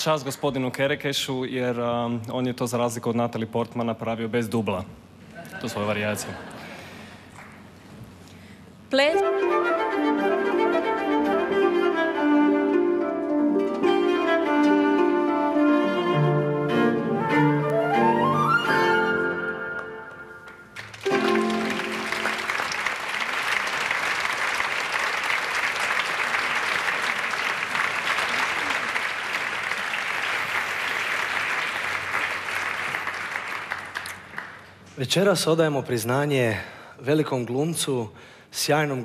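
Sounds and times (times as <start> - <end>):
orchestral ballet music: 9.0 - 23.0
audience applauding: 19.7 - 34.9.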